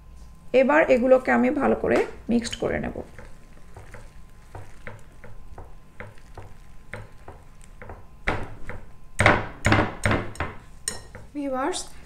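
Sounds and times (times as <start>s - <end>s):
whisk scraping glass bowl: 2.5s - 8.0s.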